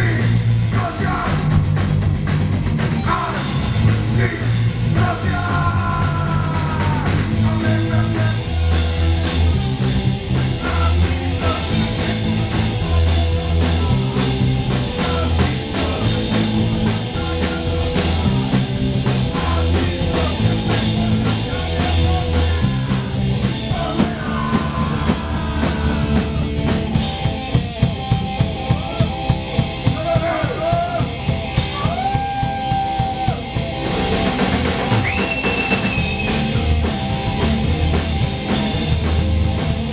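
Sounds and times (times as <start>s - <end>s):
drums hitting hard beats: 0.0s - 39.9s
punk rock band playing: 0.0s - 39.9s
person singing: 3.0s - 8.7s, 10.3s - 26.4s.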